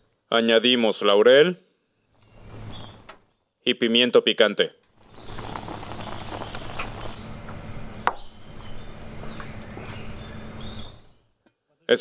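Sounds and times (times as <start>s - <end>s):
wood fire crackling: 4.9s - 11.2s
pot boiling hard: 5.0s - 10.8s.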